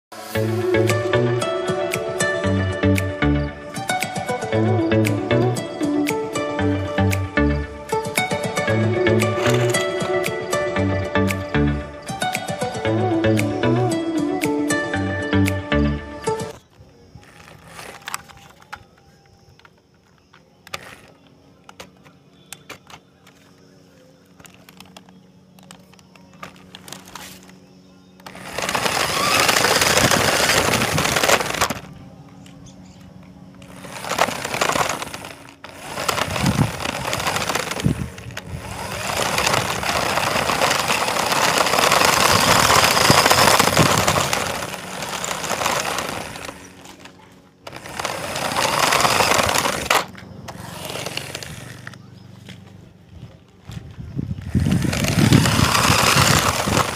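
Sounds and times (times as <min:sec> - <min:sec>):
rc car rumbling over concrete: 0:06.3 - 0:13.7, 0:15.4 - 0:18.9, 0:19.6 - 0:23.4, 0:24.3 - 0:32.0, 0:32.6 - 0:52.7, 0:54.2 - 0:56.9.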